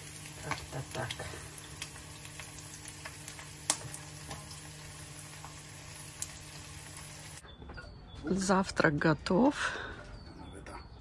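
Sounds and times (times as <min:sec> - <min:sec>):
eggs sizzling in a pan: 0:00.0 - 0:07.4.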